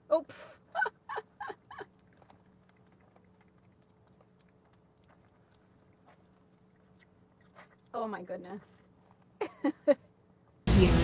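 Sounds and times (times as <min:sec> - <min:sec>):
puppy licking wet tongue clicks: 0:01.8 - 0:07.9.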